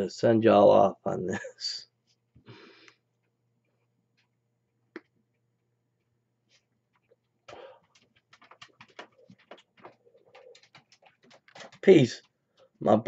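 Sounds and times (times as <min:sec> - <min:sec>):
short breath: 0:02.4 - 0:03.0, 0:07.5 - 0:07.9.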